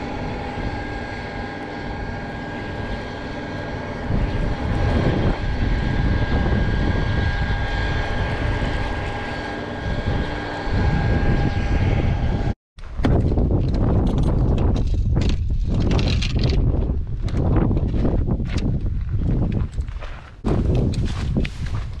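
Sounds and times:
distant engine drone: 0:00.0 - 0:12.6
high even whine: 0:00.0 - 0:12.6
wind rumbling on microphone: 0:00.0 - 0:22.0.

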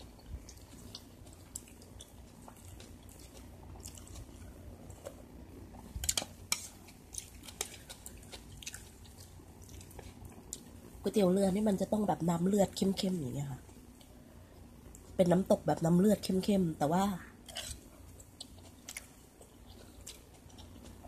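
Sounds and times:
chewing food with mouth clicks: 0:00.0 - 0:10.9, 0:17.4 - 0:21.0.

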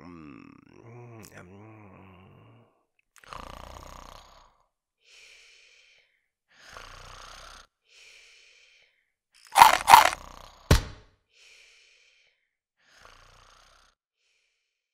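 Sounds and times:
cartoon snoring: 0:00.0 - 0:04.6, 0:06.6 - 0:07.7, 0:12.9 - 0:14.0.

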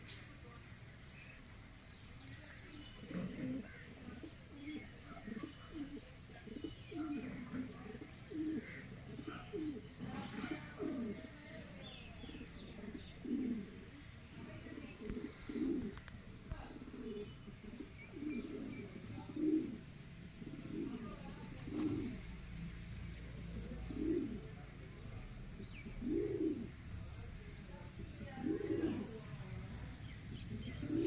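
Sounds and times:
pigeons cooing: 0:02.6 - 0:22.6, 0:23.2 - 0:24.7, 0:25.5 - 0:27.1, 0:27.9 - 0:31.0.

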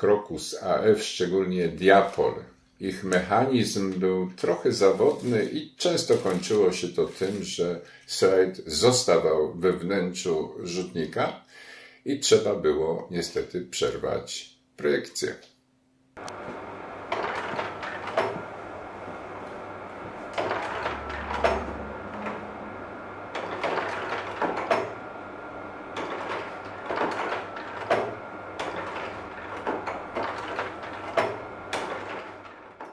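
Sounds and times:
projector fan hum: 0:00.0 - 0:11.3, 0:12.1 - 0:32.9
slide projector clacks and clunks: 0:06.0 - 0:06.6, 0:17.1 - 0:18.5, 0:20.0 - 0:22.4, 0:23.3 - 0:25.0, 0:25.9 - 0:32.9.

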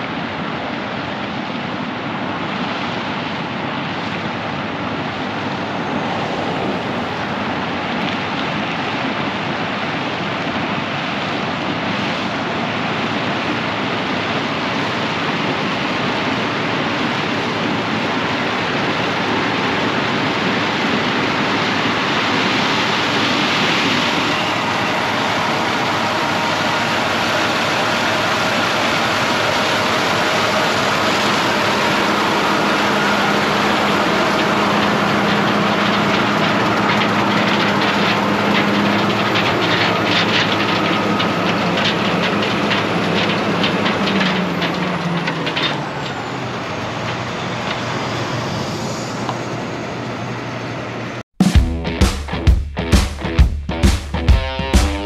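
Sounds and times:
combine harvester engine drone: 0:00.0 - 0:51.2
machine rattling: 0:22.5 - 0:46.2.

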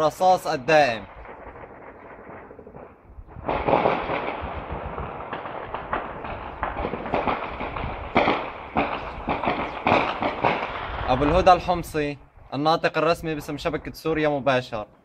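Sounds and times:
gunfire crackle: 0:00.0 - 0:12.1
loud gunshot cracks: 0:03.4 - 0:11.3.

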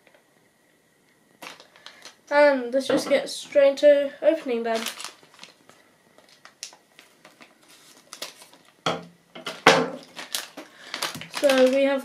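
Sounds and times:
foil packet ripping open: 0:01.4 - 0:02.2, 0:04.4 - 0:08.8, 0:09.5 - 0:12.0
foil bag crinkling: 0:01.4 - 0:02.3, 0:04.2 - 0:08.9, 0:09.5 - 0:12.0.

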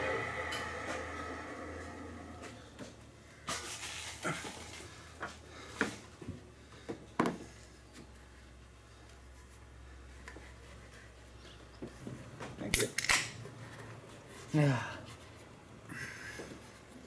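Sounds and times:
faint low hum: 0:00.0 - 0:03.4.

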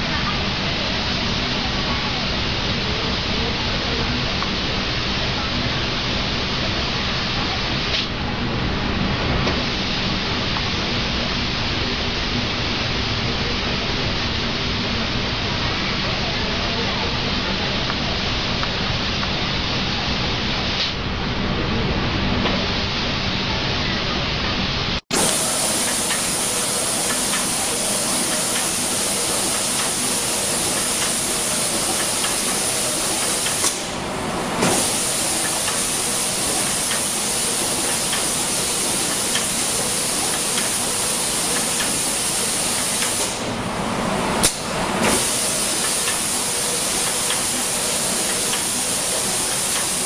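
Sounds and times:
spray guns hissing: 0:25.2 - 0:43.6, 0:44.5 - 0:50.0.

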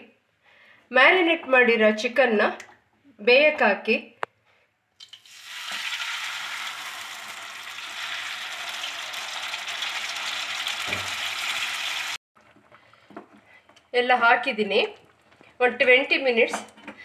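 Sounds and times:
chicken sizzling in hot oil: 0:05.0 - 0:12.2.

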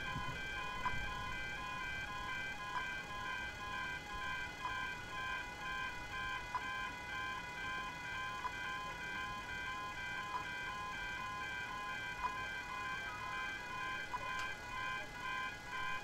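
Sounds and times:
level crossing alarm ringing: 0:00.0 - 0:16.0.

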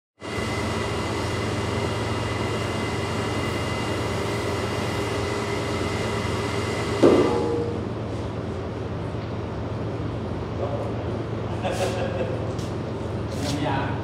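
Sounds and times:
electric machine humming: 0:00.2 - 0:10.5.

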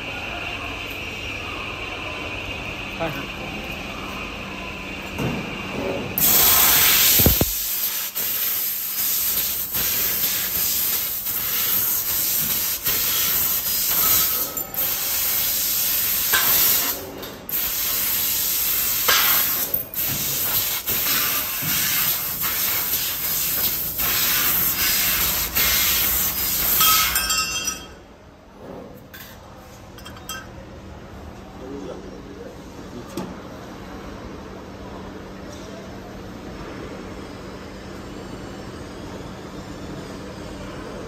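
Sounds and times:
shop background noise: 0:00.0 - 0:41.0
hiss of laser cutter assist gas: 0:06.2 - 0:27.1.

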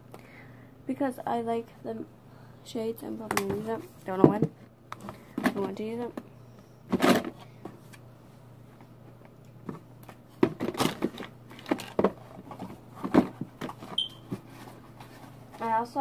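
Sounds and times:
makeup containers rustling and knocking: 0:03.2 - 0:06.3, 0:06.9 - 0:07.8, 0:09.6 - 0:15.8.

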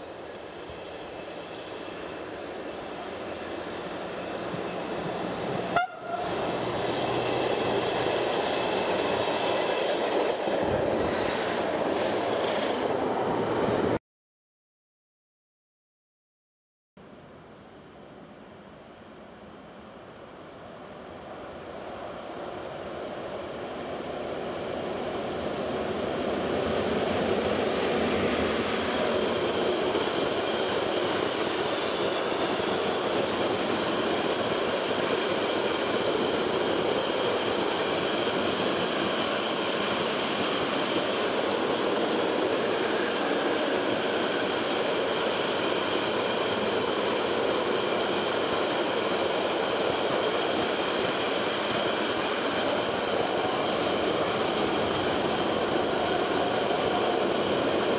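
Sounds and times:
train wheels rumbling on rails: 0:00.0 - 0:14.0, 0:23.0 - 0:57.9.

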